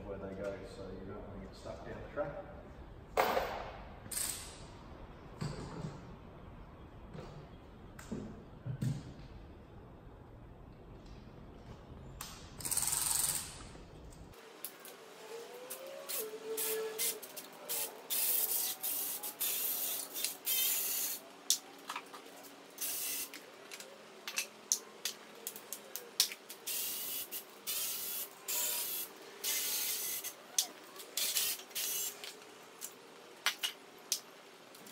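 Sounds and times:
compressed-air tool hissing: 16.1 - 21.2.

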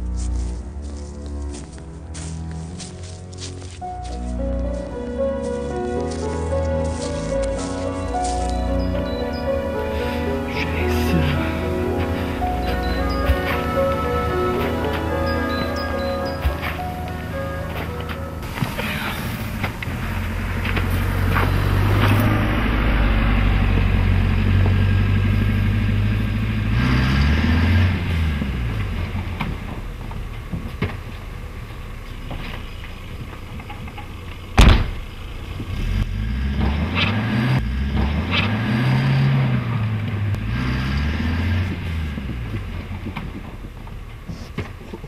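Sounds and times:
car engine revving: 3.8 - 45.0
sharp bang: 34.6 - 35.1.

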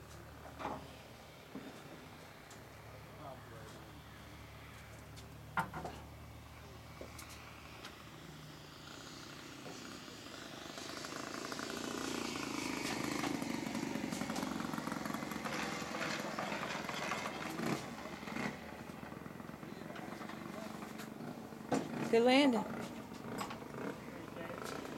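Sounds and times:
model airplane engine: 0.0 - 24.9.

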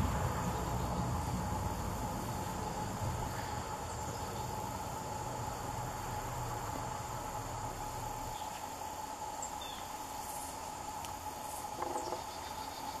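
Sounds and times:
low distant rumble: 0.0 - 8.4
insects droning: 0.0 - 13.0.

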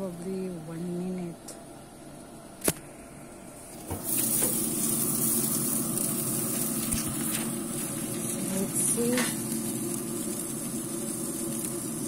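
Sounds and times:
steaks sizzling on grill: 3.8 - 12.0.

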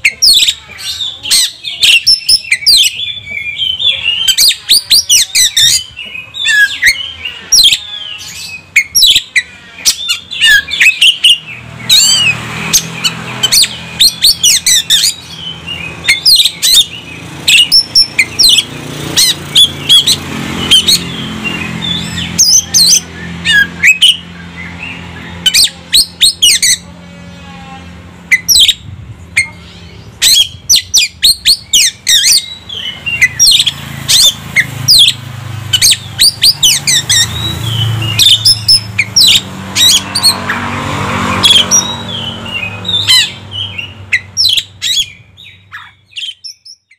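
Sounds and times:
bird singing whistled notes: 19.5 - 26.8, 30.2 - 40.4, 41.4 - 46.9.

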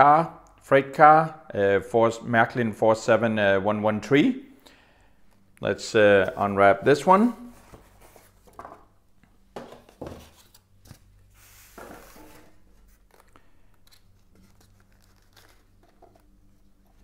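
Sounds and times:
plastic wrap crinkling: 12.8 - 17.0.

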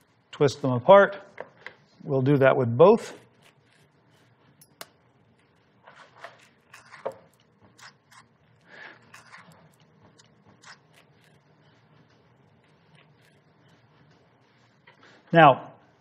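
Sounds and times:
spoon scraping avocado flesh: 3.1 - 13.9.

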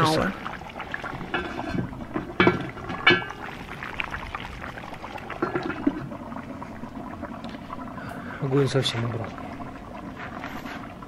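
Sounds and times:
stew bubbling and crackling: 0.0 - 11.0
cauldron lid clanking: 1.3 - 3.5, 5.3 - 6.0.

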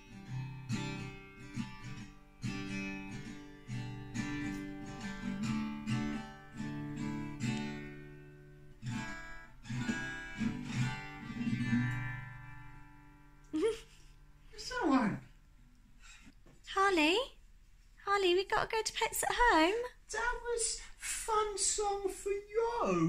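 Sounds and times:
acoustic guitar strumming: 0.0 - 13.5.

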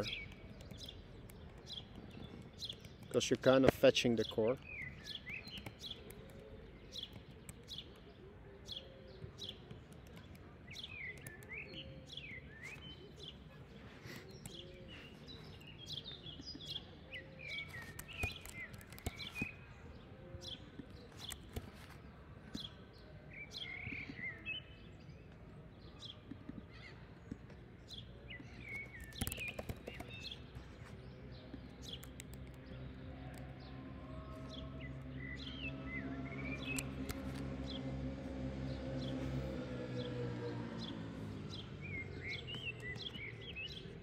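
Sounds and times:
birds chirping: 0.0 - 44.0
keyboard typing clicks: 17.8 - 19.5, 28.9 - 30.3.

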